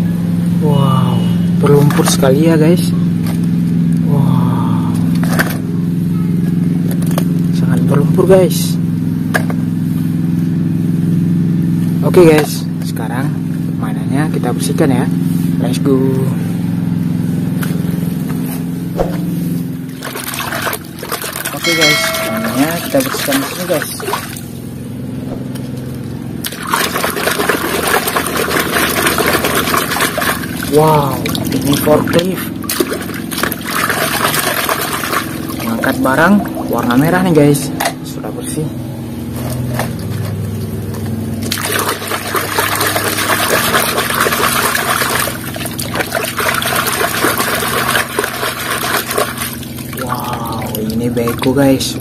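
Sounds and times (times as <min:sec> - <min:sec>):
low steady hum: 0:00.0 - 0:52.0
water splashing in a tub: 0:19.7 - 0:24.5, 0:26.4 - 0:37.1, 0:39.5 - 0:52.0.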